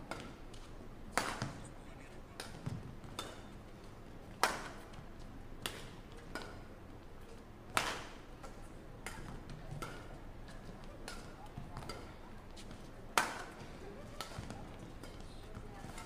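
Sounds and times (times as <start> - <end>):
rackets hitting shuttlecock: 0.1 - 1.6, 2.4 - 3.5, 4.4 - 4.8, 5.6 - 6.6, 7.7 - 16.0.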